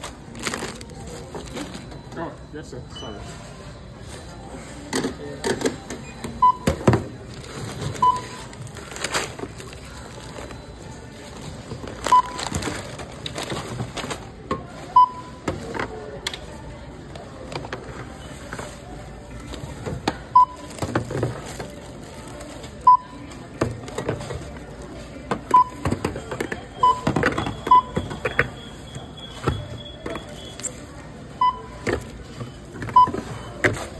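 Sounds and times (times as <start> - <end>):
barcode scanner beeping: 0.4 - 13.3, 20.3 - 21.0, 21.8 - 23.4, 25.4 - 33.7.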